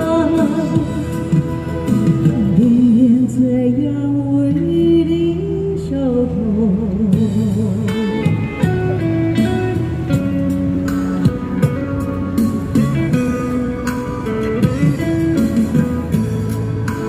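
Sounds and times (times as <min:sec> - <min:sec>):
woman singing with vibrato: 0:00.0 - 0:01.6, 0:02.2 - 0:08.3.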